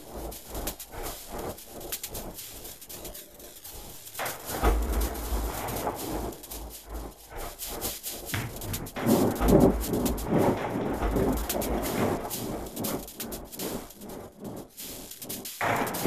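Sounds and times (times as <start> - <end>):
irregular clicks and knocks: 8.2 - 13.9.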